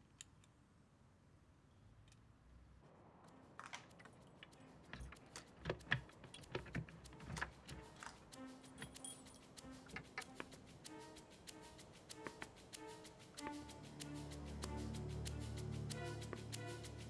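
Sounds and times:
keys jangling: 4.4 - 10.3.

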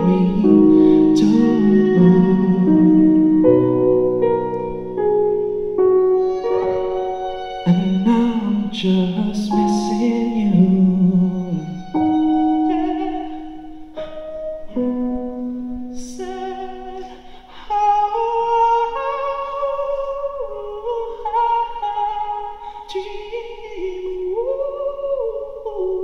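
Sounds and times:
man singing high wordless notes: 0.0 - 4.9, 7.2 - 26.0.

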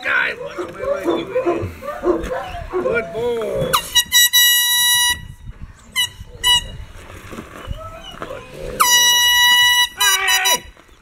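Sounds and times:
air horn blasting: 8.8 - 10.8.

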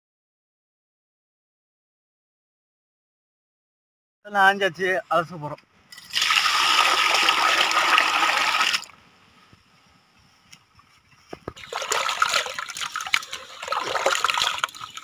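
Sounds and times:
water pouring into a metal basin: 6.0 - 8.9, 11.6 - 15.0
hands sloshing in water: 11.6 - 15.0.

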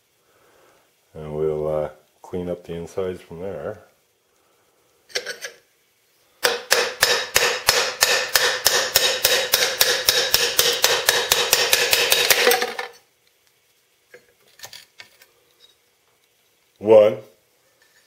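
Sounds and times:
hammer tapping steel punch: 6.4 - 12.6.

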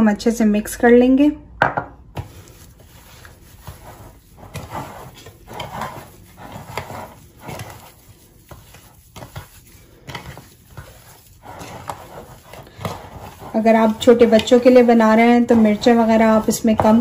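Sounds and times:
hand squishing mashed potatoes: 2.0 - 17.0.

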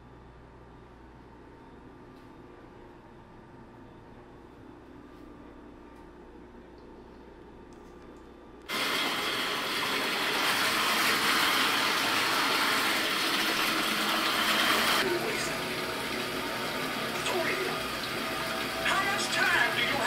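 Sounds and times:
water gushing from faucet into tub: 8.7 - 20.0.

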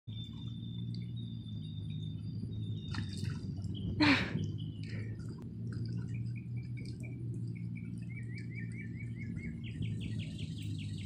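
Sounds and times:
steady low hum: 0.1 - 11.0
dog paws splashing in water: 2.3 - 10.0.

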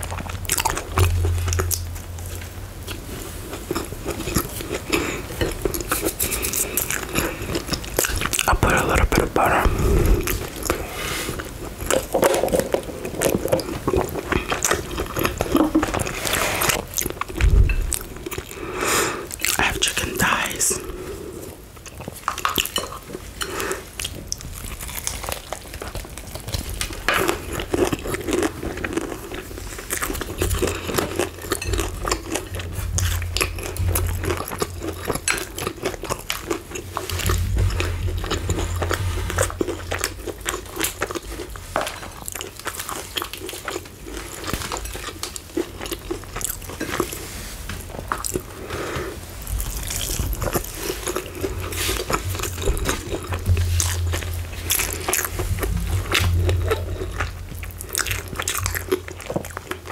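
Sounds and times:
chewing: 0.0 - 59.9
crunching fried chicken: 21.8 - 59.9.

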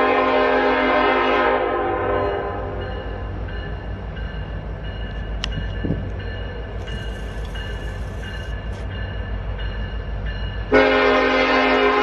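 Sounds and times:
locomotive air horn: 0.0 - 2.8, 10.7 - 12.0
diesel locomotive rumbling: 0.0 - 12.0.

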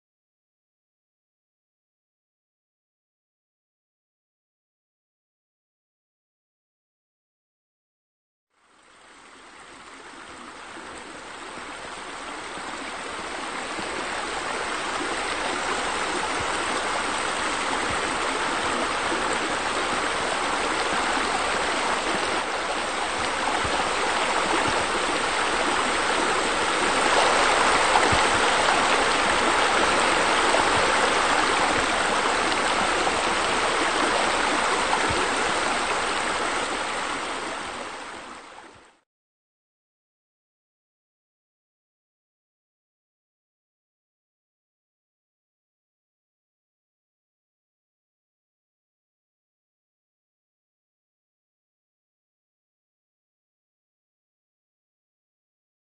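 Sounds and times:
running water rushing: 8.6 - 39.0.

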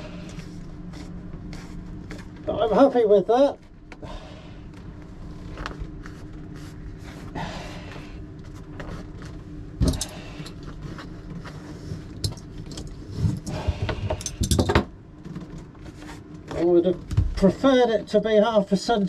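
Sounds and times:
steady low hum: 0.0 - 19.0
clicks and knocks of tools: 13.9 - 15.6.

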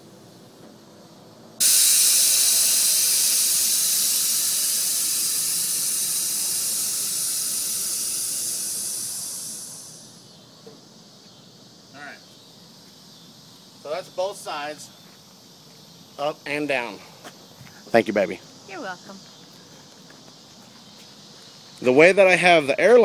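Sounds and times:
air hissing out: 1.6 - 10.5.

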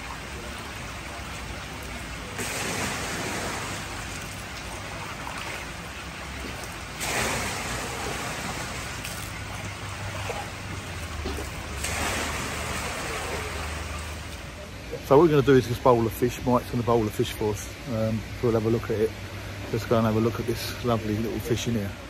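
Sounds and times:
water pouring into tank: 0.0 - 14.5.

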